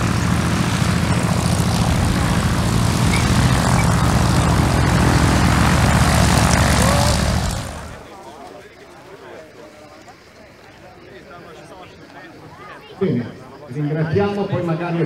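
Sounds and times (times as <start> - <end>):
loud engine drone: 0.0 - 8.1.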